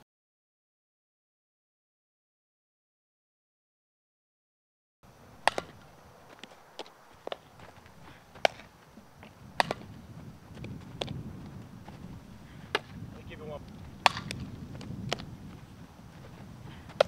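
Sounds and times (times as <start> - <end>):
ball smacking into glove: 5.4 - 8.7, 9.6 - 10.0, 14.0 - 15.3
bat hitting softball: 5.4 - 11.2, 12.6 - 13.0, 13.9 - 15.3, 16.7 - 17.0.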